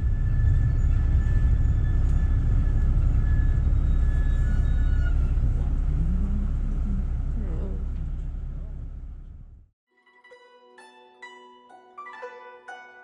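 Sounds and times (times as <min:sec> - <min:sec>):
bus engine and road noise: 0:00.0 - 0:09.7.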